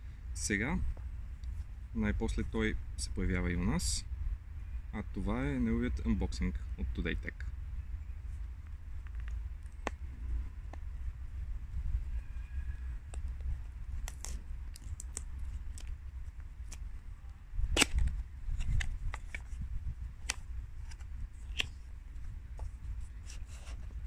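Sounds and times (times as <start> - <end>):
cardboard box clicks and snaps: 17.7 - 19.6, 20.2 - 21.8.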